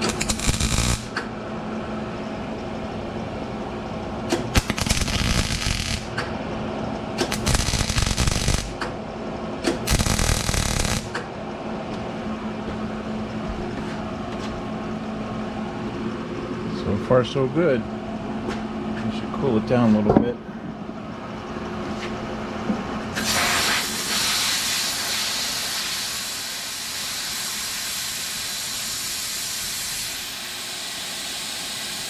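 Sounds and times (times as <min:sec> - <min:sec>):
welder arc crackling: 0:00.0 - 0:01.2, 0:04.3 - 0:06.2, 0:07.2 - 0:08.8, 0:09.7 - 0:11.2
steady hum: 0:00.0 - 0:24.1.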